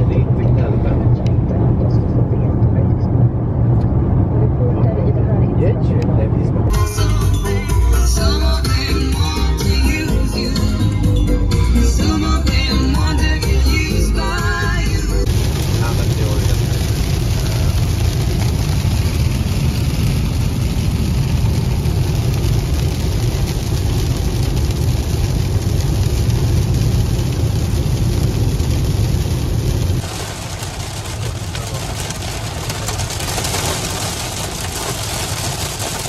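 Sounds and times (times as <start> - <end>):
car road rumble: 0.0 - 36.0
rain spray on windscreen: 15.2 - 36.0.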